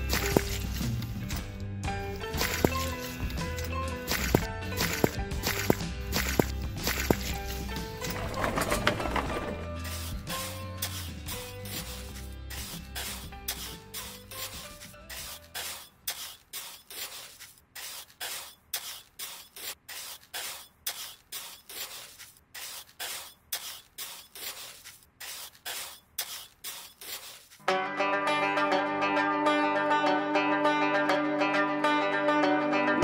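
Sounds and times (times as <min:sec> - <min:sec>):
background music: 0:00.0 - 0:15.9, 0:27.6 - 0:33.0
trowel scraping wet cement: 0:00.0 - 0:27.6.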